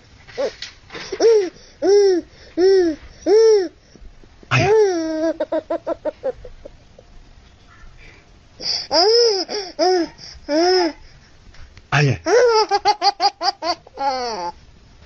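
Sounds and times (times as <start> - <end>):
baby laughing: 0.4 - 3.7, 4.5 - 6.8, 8.6 - 11.0, 12.2 - 14.6.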